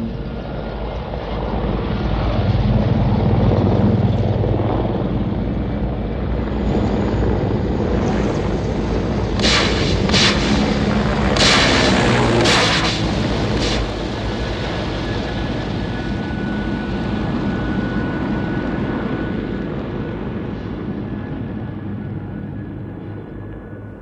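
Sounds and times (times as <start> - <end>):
helicopters flying overhead: 0.0 - 24.0
sudden rushing blasts: 9.0 - 15.0.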